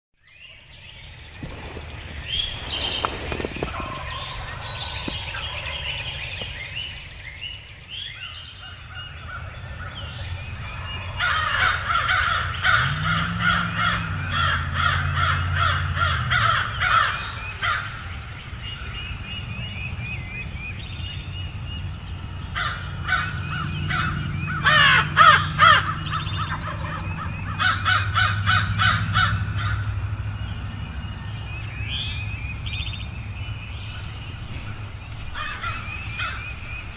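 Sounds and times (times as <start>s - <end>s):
small birds singing: 0.2s - 36.9s
crows cawing: 10.9s - 17.9s, 22.6s - 29.9s, 35.3s - 36.5s.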